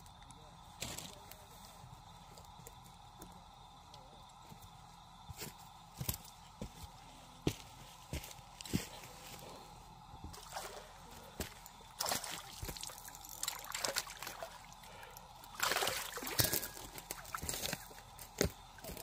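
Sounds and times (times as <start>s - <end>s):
water sloshing and splashing: 10.3s - 14.9s, 15.5s - 17.8s.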